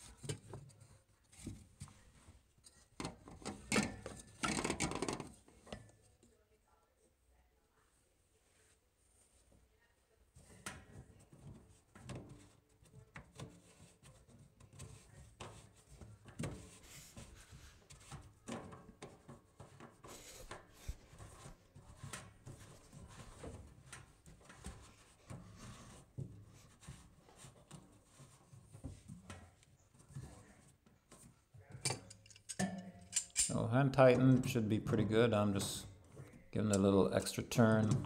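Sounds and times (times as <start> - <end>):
plastic nuts clicking and scraping: 3.0 - 5.4.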